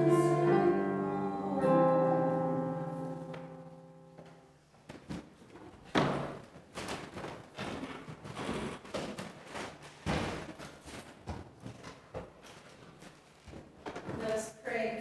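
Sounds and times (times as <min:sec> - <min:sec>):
rustling of books and papers: 0:04.2 - 0:14.6.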